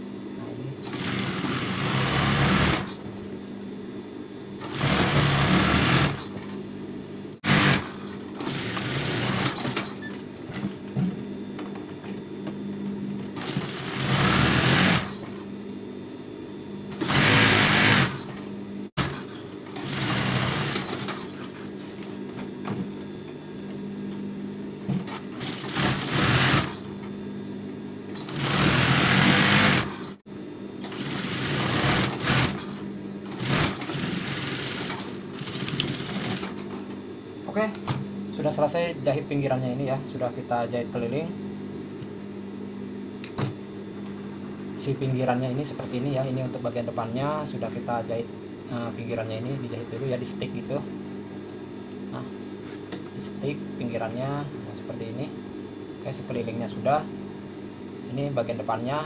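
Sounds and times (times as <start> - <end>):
steady motor hum: 0.0 - 59.0
sewing machine stitching: 0.9 - 3.0, 4.6 - 6.3, 7.4 - 9.9, 13.4 - 15.2, 16.9 - 18.3, 19.0 - 21.4, 25.4 - 26.9, 28.2 - 30.2, 30.8 - 36.6.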